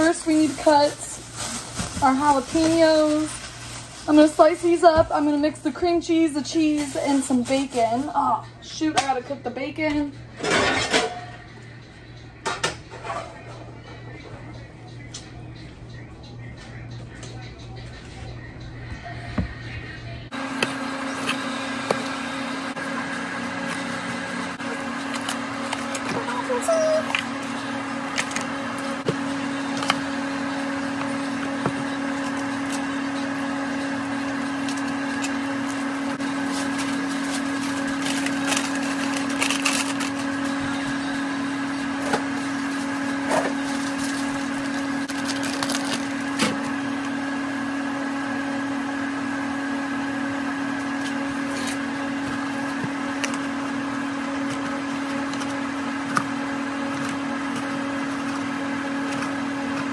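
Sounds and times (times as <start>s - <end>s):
kitchen appliance motor humming: 19.4s - 59.9s.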